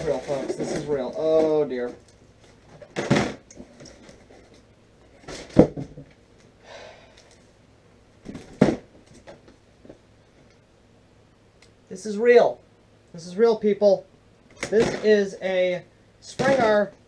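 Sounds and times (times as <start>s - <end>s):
cardboard rustling: 0.0s - 6.0s.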